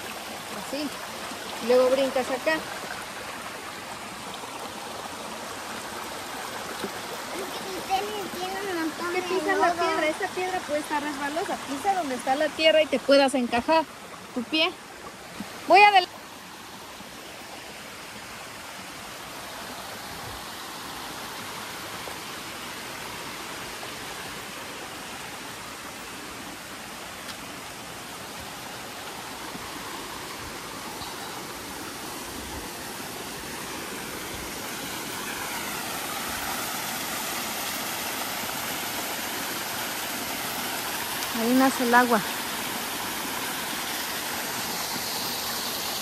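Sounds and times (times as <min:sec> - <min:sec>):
stream rushing: 0:00.0 - 0:46.0.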